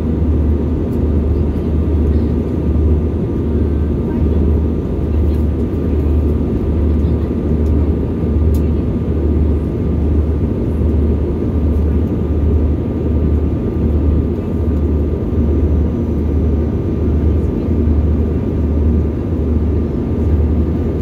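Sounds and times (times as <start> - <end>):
airliner cabin engine rumble: 0.0 - 21.0.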